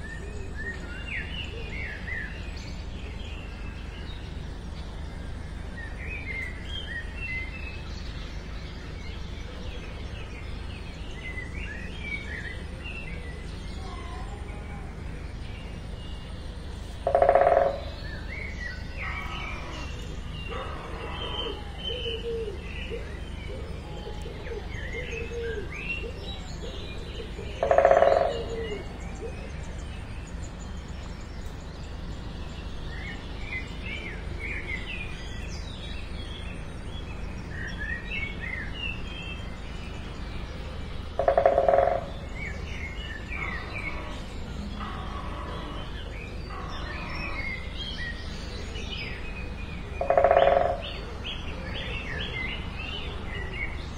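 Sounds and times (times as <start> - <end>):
small birds chirping: 0.0 - 53.9
steady low rumble: 22.4 - 53.9.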